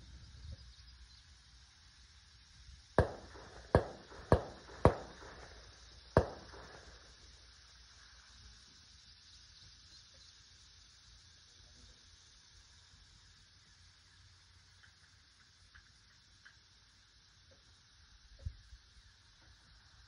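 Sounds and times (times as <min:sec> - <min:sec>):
low outdoor background: 0:00.0 - 0:20.0
rifle shots: 0:03.0 - 0:07.1.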